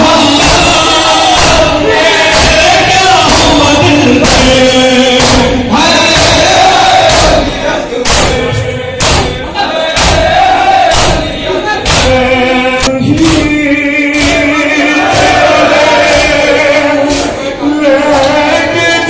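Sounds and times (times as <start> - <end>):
men chanting: 0.0 - 19.0
hands slapping chests: 0.4 - 3.6, 6.1 - 9.4, 10.0 - 12.2, 17.0 - 17.4.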